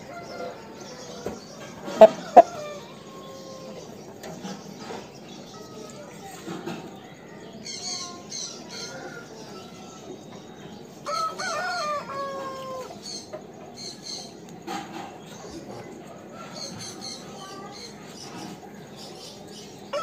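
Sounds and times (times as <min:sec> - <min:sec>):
rooster crowing: 0:02.0 - 0:03.6, 0:11.0 - 0:13.0.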